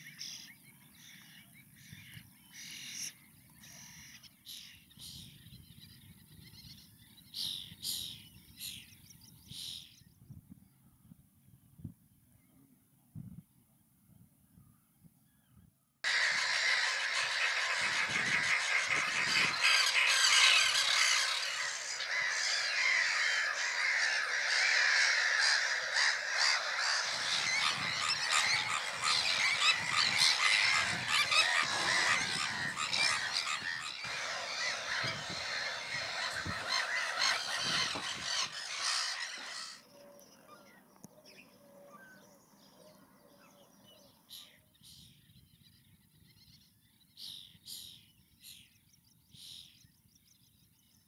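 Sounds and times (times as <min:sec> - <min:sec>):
terns calling harshly: 0:16.0 - 0:39.9.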